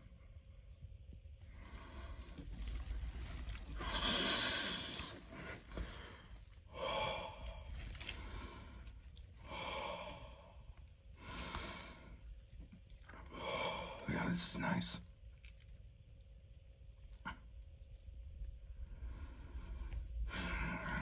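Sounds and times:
man breathing deeply: 3.8s - 12.2s, 13.2s - 14.0s.

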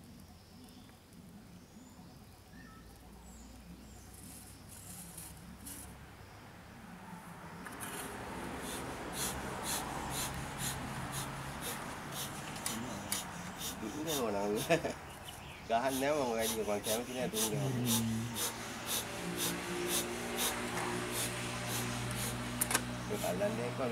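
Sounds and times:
bellows puffing air: 7.8s - 23.9s.

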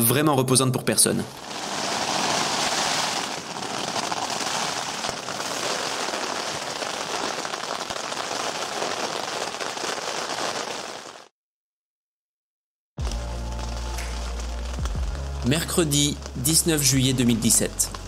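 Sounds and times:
rain pattering on a tent: 1.4s - 11.2s, 13.0s - 18.0s.

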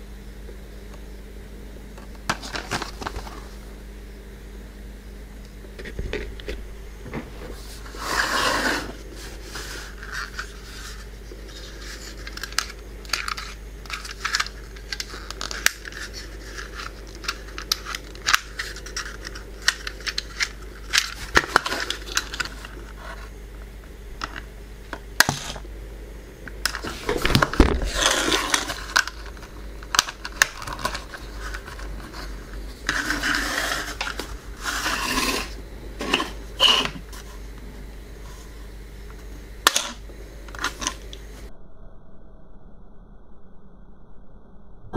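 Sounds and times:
plastic scraping and rustling: 2.3s - 3.6s, 5.8s - 23.3s, 26.6s - 37.4s.

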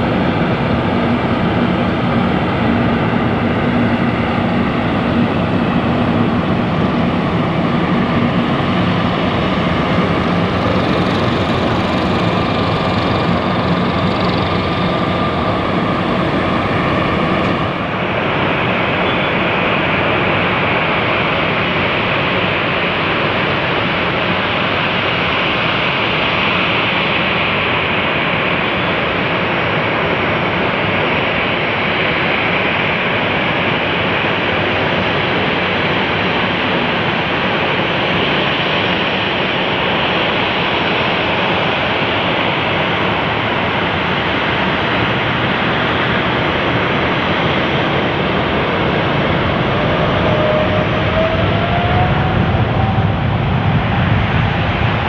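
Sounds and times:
jet engines running: 0.0s - 55.0s.

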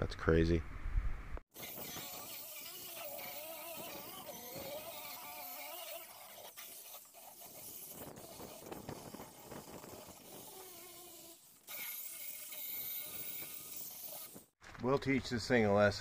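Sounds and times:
sanding disc hissing on fibreglass: 1.6s - 14.6s.

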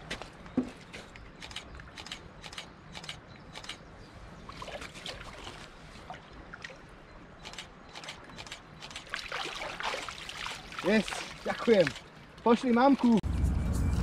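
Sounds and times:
shallow water lapping: 4.0s - 13.2s
fish swirl and splash: 9.1s - 12.1s.

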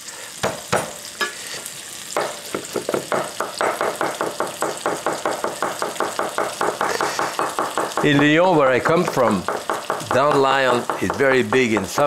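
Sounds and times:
bacon sizzling in a skillet: 0.0s - 12.0s
knife chopping on wooden board: 2.2s - 8.2s, 8.9s - 12.0s.

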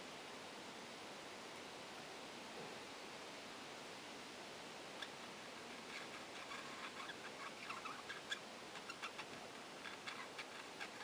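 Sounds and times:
faint steady hiss: 0.0s - 11.0s
budgerigars chirping: 5.8s - 11.0s.

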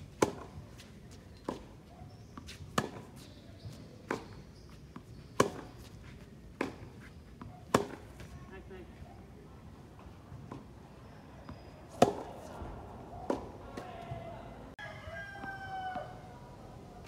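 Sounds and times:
tennis ball bouncing: 0.0s - 8.3s, 10.3s - 10.8s, 11.4s - 14.3s
tennis racket hitting ball: 0.1s - 1.7s, 2.4s - 3.4s, 5.3s - 5.9s, 6.5s - 8.3s, 11.5s - 14.2s.

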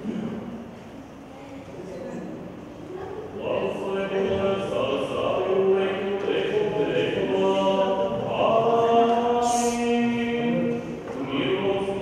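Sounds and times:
person chanting on held notes: 3.4s - 12.0s.

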